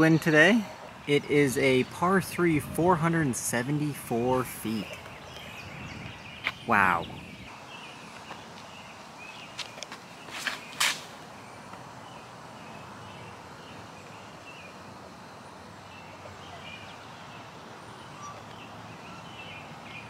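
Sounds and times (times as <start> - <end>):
outdoor background noise: 0.0 - 20.0
small birds chirping: 0.0 - 20.0
shoes scuffing on concrete: 9.4 - 11.3.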